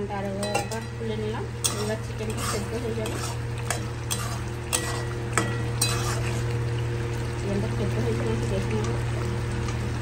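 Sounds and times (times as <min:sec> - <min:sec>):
steady low hum: 0:00.0 - 0:10.0
spatula stirring curry: 0:01.6 - 0:06.7.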